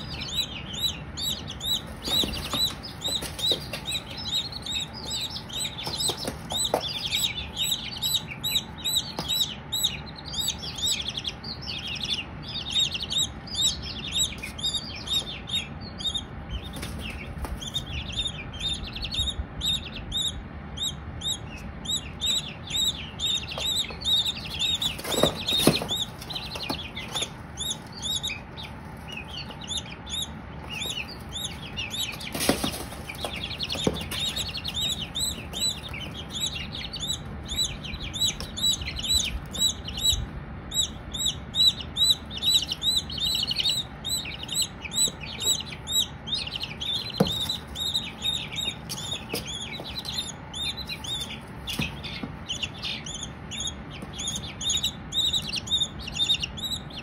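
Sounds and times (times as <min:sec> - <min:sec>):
chicks peeping: 0:00.0 - 0:57.0
rustling: 0:30.7 - 0:36.3.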